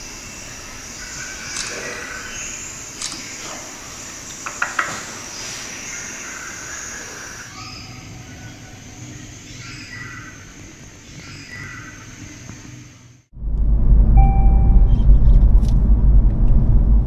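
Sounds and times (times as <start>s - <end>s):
sharp clicks: 3.0s - 3.3s.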